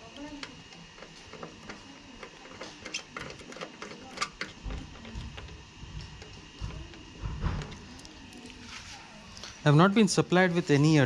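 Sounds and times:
allen key clicking and scraping: 1.0s - 4.6s.

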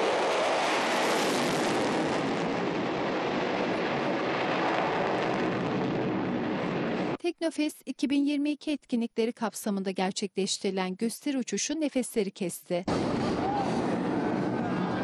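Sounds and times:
jet engine roar: 0.0s - 7.2s, 12.9s - 15.0s.

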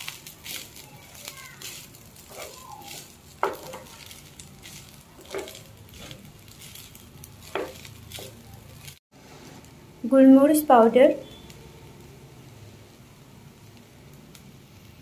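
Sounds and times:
spatula stirring rice in pan: 0.0s - 9.7s
faint sizzle: 0.0s - 15.0s.

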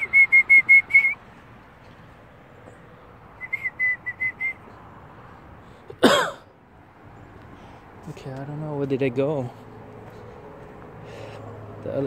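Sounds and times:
person whistling short notes: 0.0s - 1.2s, 3.4s - 4.6s.

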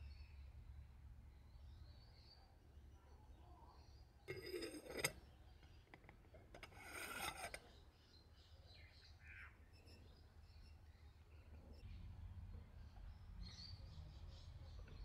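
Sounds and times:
metal lid scraping ceramic: 4.3s - 7.8s.

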